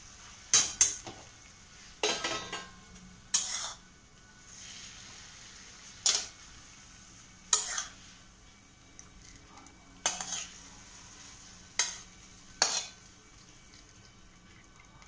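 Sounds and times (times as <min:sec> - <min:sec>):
faint steady hum: 0:00.0 - 0:15.0
metal spatula scraping a wok: 0:03.3 - 0:03.9, 0:04.5 - 0:06.5, 0:07.5 - 0:08.2, 0:10.0 - 0:13.0.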